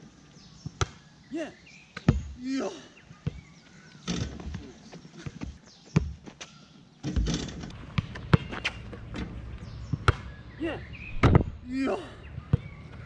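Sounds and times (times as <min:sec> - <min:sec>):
basketball hitting ball and rim: 0:07.0 - 0:10.3, 0:11.1 - 0:11.6.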